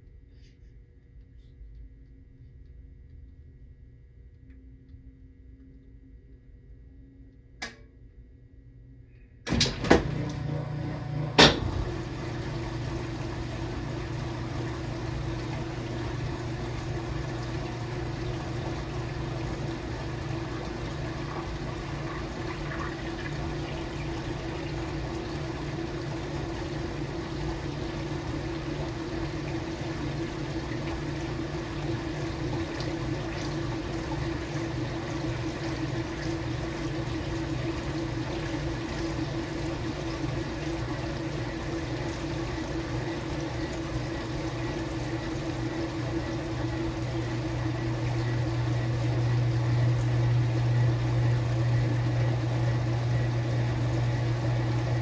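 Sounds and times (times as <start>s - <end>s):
constant hum: 0.0s - 55.0s
washing machine clicks: 9.5s - 12.6s
water pouring into tub: 11.6s - 55.0s.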